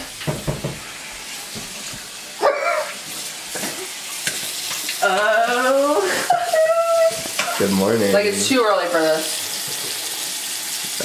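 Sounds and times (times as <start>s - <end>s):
tap running into sink: 0.0s - 0.9s.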